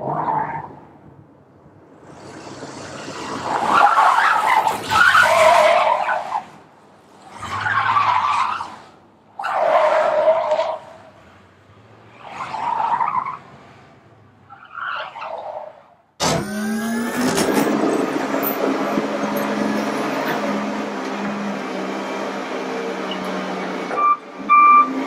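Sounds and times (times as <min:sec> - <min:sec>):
harsh grinding noise: 0:16.2 - 0:21.6.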